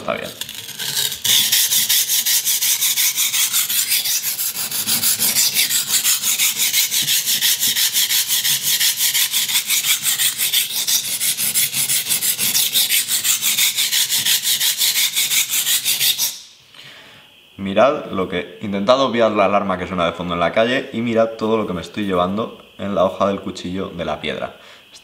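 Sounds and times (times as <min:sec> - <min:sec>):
knife scrubbing on sharpening stone: 0:00.2 - 0:16.4.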